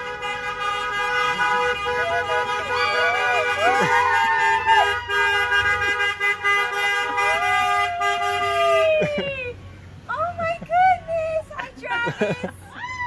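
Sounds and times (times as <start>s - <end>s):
car horns honking: 0.0s - 8.8s
voices calling out: 0.0s - 13.0s.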